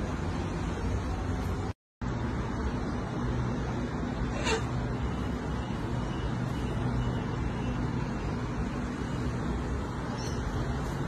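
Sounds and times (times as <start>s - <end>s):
distant road traffic: 0.0s - 11.0s
faint high chirp: 5.0s - 9.4s, 10.0s - 11.0s.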